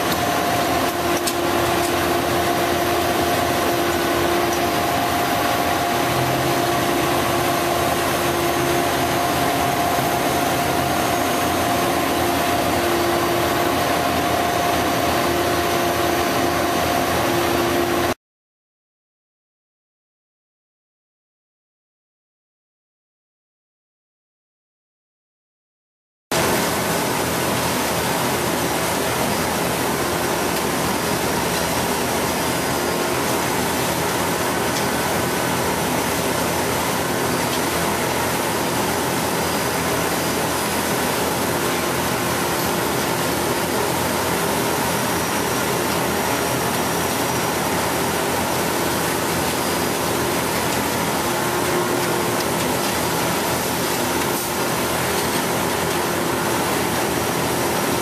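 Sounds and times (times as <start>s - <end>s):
heavy engine droning: 0.0s - 18.2s, 42.6s - 57.8s.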